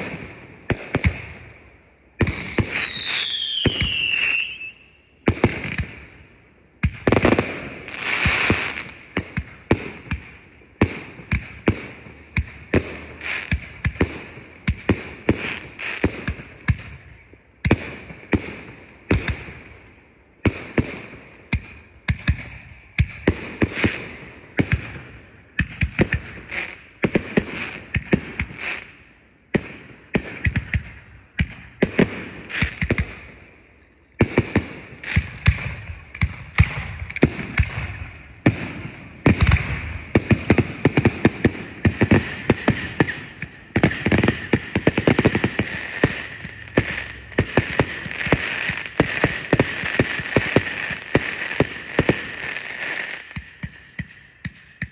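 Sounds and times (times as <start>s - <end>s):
fireworks bangs: 2.2s - 6.1s, 6.8s - 17.0s, 29.5s - 33.4s, 34.2s - 54.9s.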